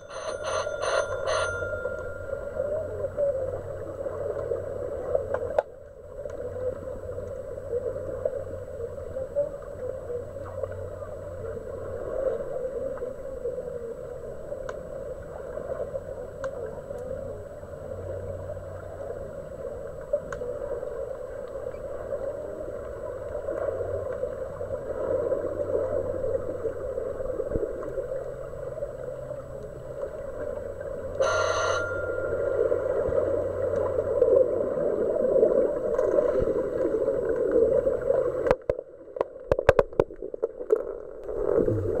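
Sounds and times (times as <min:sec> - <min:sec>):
short high-pitched buzz: 0:00.0 - 0:02.6, 0:31.2 - 0:33.6
low hum: 0:00.0 - 0:38.9.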